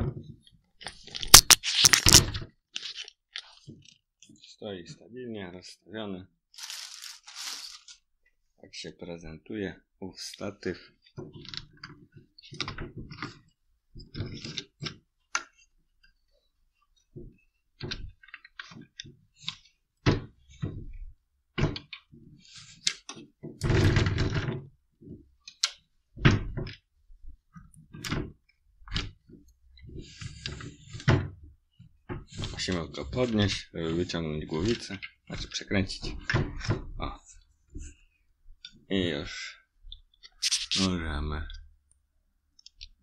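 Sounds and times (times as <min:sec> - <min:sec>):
tripod rubbing sound: 0:06.6 - 0:08.0.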